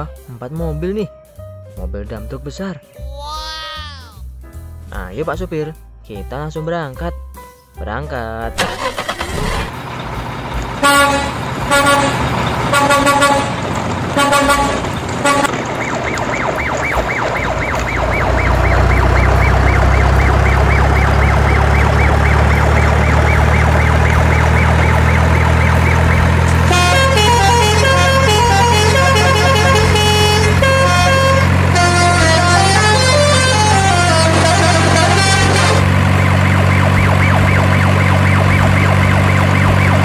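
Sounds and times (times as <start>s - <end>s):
music: 0.0s - 9.3s, 26.7s - 35.8s
truck engine running: 8.5s - 40.0s
truck horn toots: 10.8s - 15.6s, 18.9s - 35.9s.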